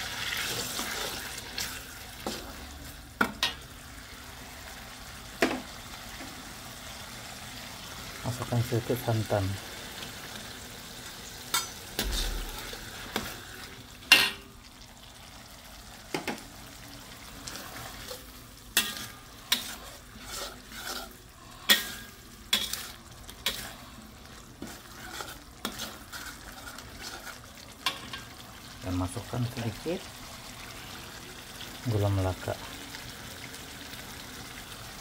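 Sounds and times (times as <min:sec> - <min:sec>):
low sizzle: 0:00.0 - 0:35.0
metal spatula scraping wok: 0:00.1 - 0:02.9, 0:11.5 - 0:14.4, 0:17.4 - 0:28.3.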